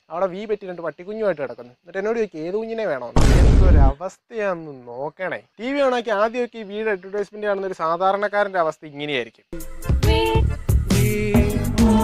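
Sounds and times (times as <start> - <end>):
percussive hits: 3.2 - 4.0
bass line: 9.8 - 12.0.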